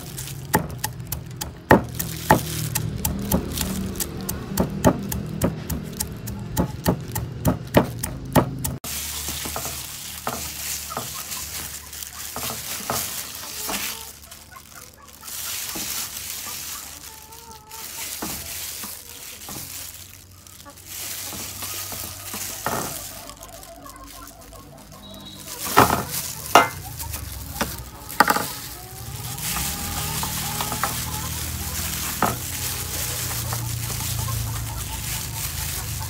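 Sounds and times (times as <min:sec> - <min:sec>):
gloved hands handling fish: 0:08.7 - 0:36.0.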